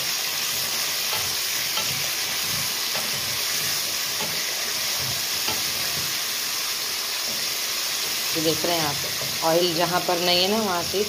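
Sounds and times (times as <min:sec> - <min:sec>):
chicken sizzling in hot oil: 0:00.0 - 0:11.0
wooden spatula scraping and stirring: 0:00.3 - 0:06.5, 0:07.1 - 0:09.8.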